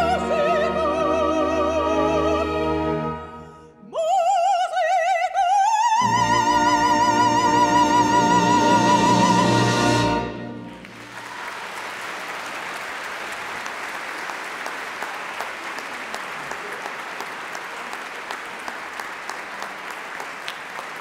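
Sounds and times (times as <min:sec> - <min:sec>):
audience applauding: 0:10.6 - 0:21.0.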